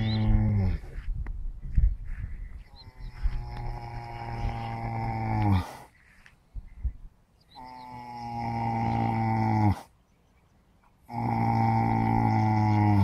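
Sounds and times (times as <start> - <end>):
quiet breathing: 2.0 - 7.2
horse snoring: 3.3 - 5.9, 7.6 - 9.9, 11.1 - 13.0.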